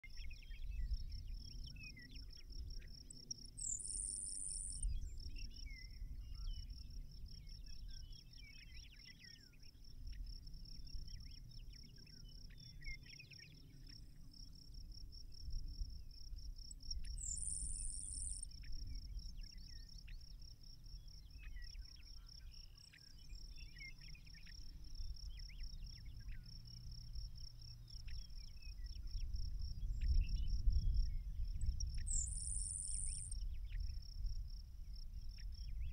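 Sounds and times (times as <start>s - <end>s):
bird high buzz song: 0.0s - 14.2s, 16.7s - 34.0s
insect high pulsing trill: 2.9s - 4.9s, 14.0s - 29.5s, 30.3s - 34.6s.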